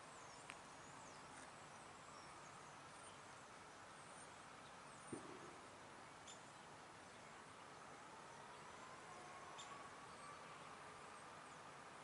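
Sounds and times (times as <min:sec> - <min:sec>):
faint high bird chirps: 0:06.2 - 0:11.7.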